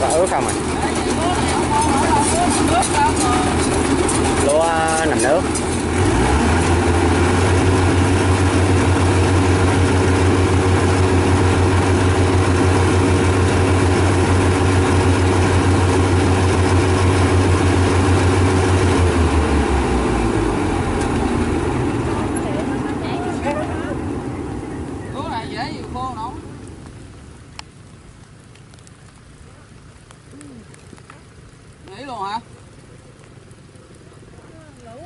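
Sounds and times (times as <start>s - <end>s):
combine harvester diesel engine droning: 0.0s - 27.4s.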